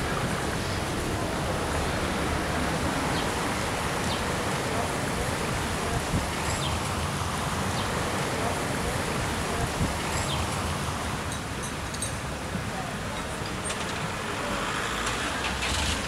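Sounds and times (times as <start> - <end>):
stream running: 0.0 - 16.0.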